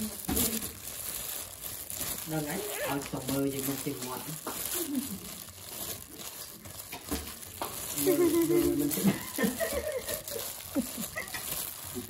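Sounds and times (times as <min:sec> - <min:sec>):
gloved hands rustling leaves: 0:00.0 - 0:12.0
person's voice: 0:02.2 - 0:05.2, 0:08.0 - 0:10.1.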